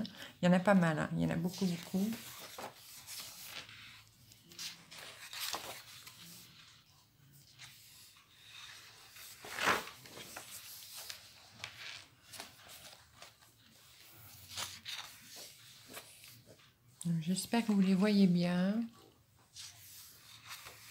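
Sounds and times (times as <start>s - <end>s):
paper pages turning: 1.5s - 16.7s, 19.5s - 20.9s.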